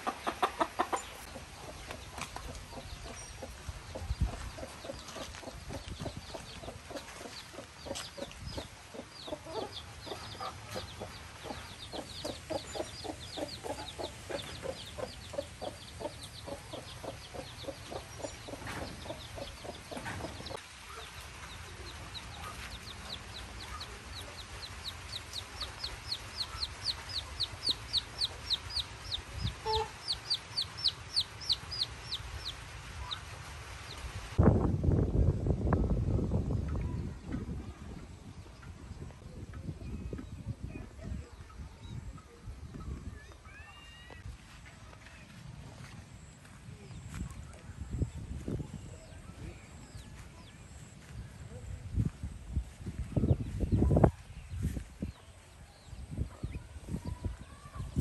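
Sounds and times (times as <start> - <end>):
hen clucking: 0.0 - 20.6, 22.3 - 33.3
chicks peeping: 0.0 - 34.1.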